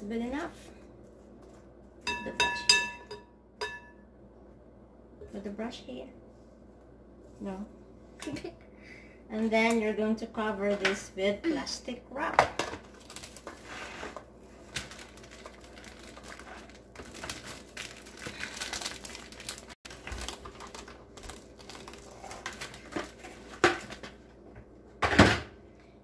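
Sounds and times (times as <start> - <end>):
cling wrap crinkling: 12.8 - 24.0.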